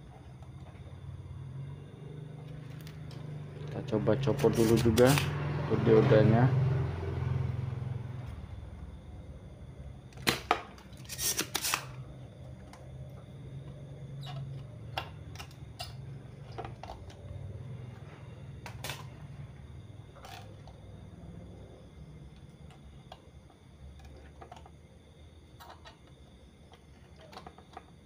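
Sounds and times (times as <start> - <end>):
desoldering pump snapping: 4.4 - 5.4, 10.1 - 12.0.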